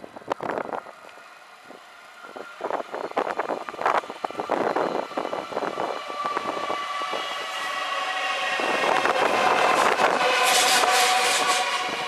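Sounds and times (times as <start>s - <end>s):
train whine: 0.0s - 12.0s
train wheels clattering: 6.2s - 12.0s.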